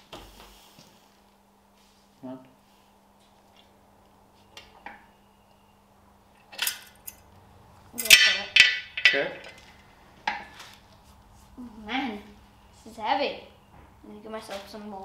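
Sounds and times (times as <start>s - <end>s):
engine stand steel clanks: 8.0s - 10.5s.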